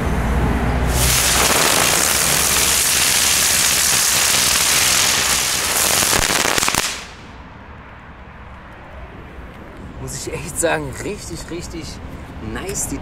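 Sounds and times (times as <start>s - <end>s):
firework hissing crackle: 0.8s - 7.4s.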